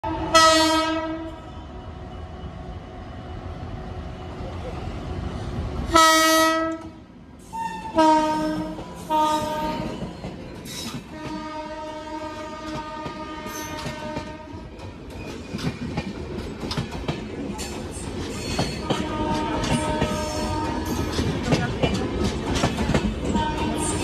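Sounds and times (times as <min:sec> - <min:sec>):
locomotive horn blasts: 0:00.0 - 0:01.4, 0:05.9 - 0:06.9, 0:07.6 - 0:09.9, 0:11.1 - 0:14.5, 0:18.9 - 0:20.9, 0:23.3 - 0:24.0
train wheels clattering over rail joints: 0:08.7 - 0:11.6, 0:12.5 - 0:24.0.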